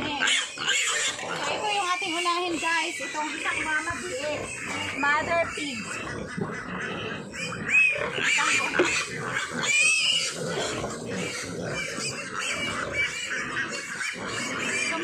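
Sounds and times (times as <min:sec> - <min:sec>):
pigs squealing: 0:00.0 - 0:15.0.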